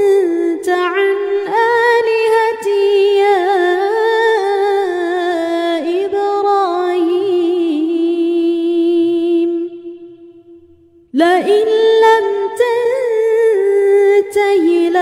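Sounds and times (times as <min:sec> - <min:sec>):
person chanting recitation: 0:00.0 - 0:09.9, 0:11.2 - 0:15.0.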